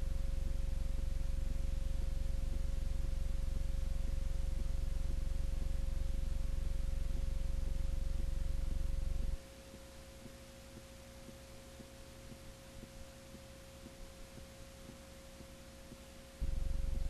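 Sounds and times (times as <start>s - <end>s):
electrical hum and hiss: 0.0s - 17.0s
faint steady tone: 0.0s - 17.0s
loud low buzz: 16.4s - 17.0s.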